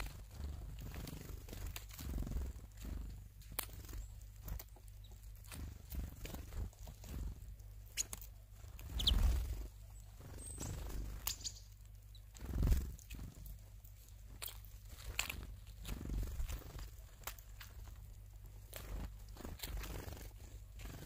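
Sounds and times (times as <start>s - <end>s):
bird chirp: 7.9s - 12.4s.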